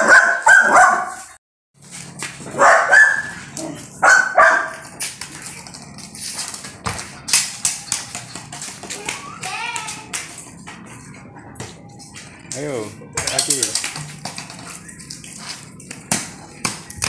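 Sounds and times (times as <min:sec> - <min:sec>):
puppy barking: 0:00.0 - 0:01.3, 0:02.5 - 0:05.0.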